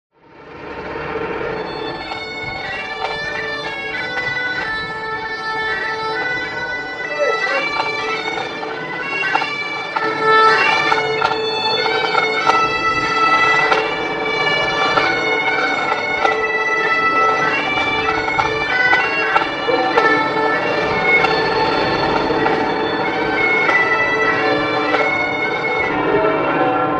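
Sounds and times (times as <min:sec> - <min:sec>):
bagpipes playing a tune: 0:00.5 - 0:26.9.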